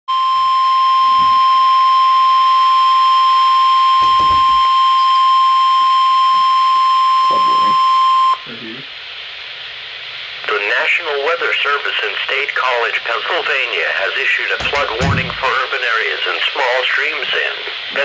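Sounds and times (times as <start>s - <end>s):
steady alarm tone: 0.1s - 8.6s, 14.6s - 15.6s.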